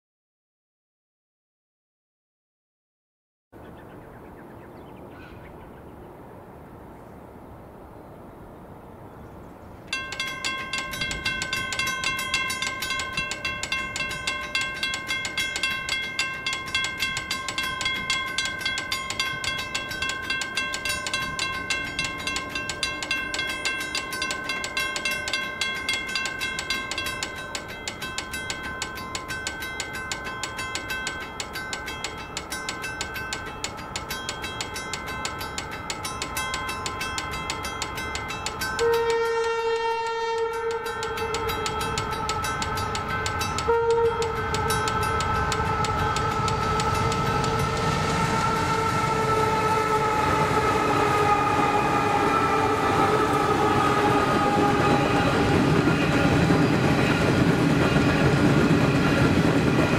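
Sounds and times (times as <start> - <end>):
level crossing bells ringing: 9.9 - 59.9.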